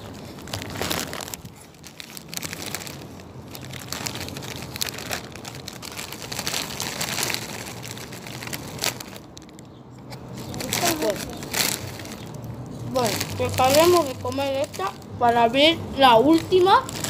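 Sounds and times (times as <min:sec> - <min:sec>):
crackers crunching: 0:00.0 - 0:15.2, 0:16.2 - 0:17.0
plastic bag crinkling: 0:00.0 - 0:17.0.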